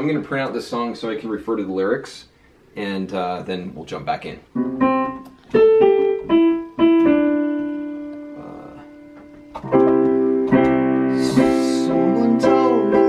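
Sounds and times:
piano notes: 4.4s - 13.0s
piano chord: 4.6s - 13.0s.

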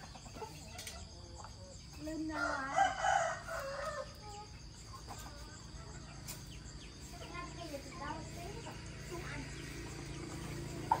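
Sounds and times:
rooster crowing: 2.3s - 4.1s.

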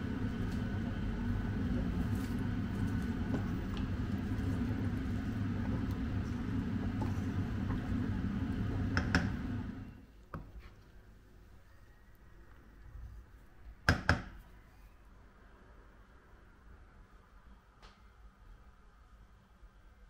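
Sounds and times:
low motor hum: 0.0s - 10.0s.

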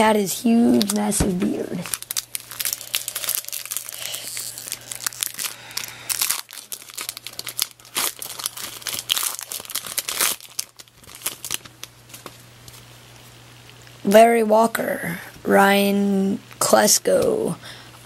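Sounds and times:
foil wrapper crinkling and tearing: 0.6s - 12.9s.

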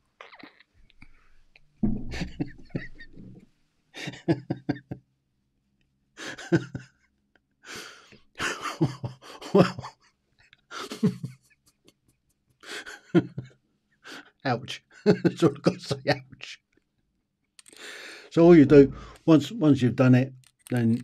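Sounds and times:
man laughing: 2.1s - 3.3s, 4.0s - 5.0s, 6.2s - 6.9s, 8.4s - 10.0s, 10.7s - 11.4s, 12.7s - 13.5s, 14.5s - 16.4s
breathy exhalations: 7.6s - 8.2s, 14.0s - 14.4s, 17.6s - 19.3s.

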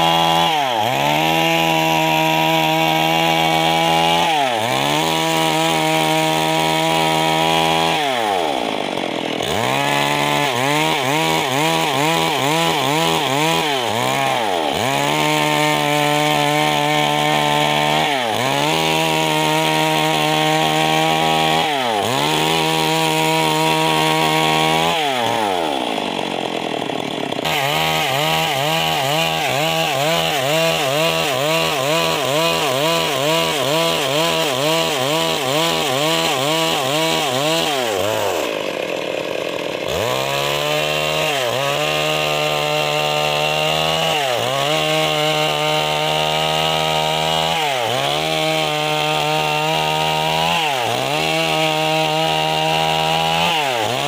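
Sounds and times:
chainsaw ripping a log: 0.0s - 54.0s.

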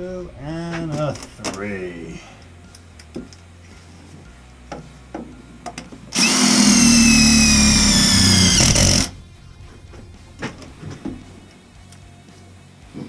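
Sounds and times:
cordless drill whining: 6.1s - 9.2s.

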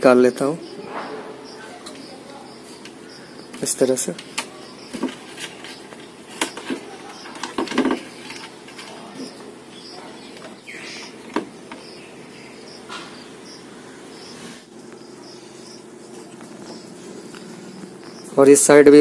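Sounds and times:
insects chirping: 0.0s - 19.0s
clicks and knocks on plastic: 4.2s - 9.0s.

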